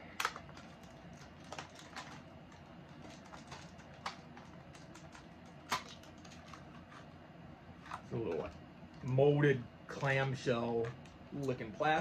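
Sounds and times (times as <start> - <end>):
low steady hum: 0.0 - 12.0
plastic package clicks and crackles: 0.1 - 6.7.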